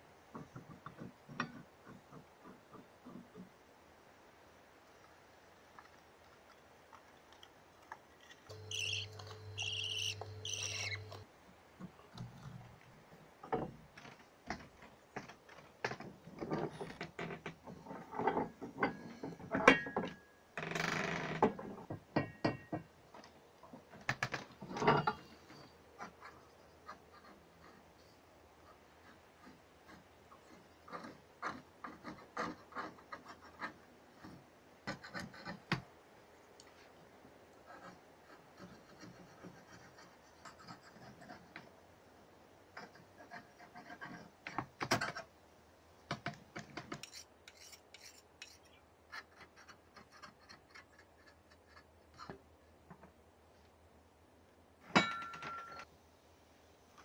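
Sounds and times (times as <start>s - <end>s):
yarn scraping and rubbing on loom: 8.1s - 19.9s, 42.7s - 45.3s, 46.1s - 53.1s.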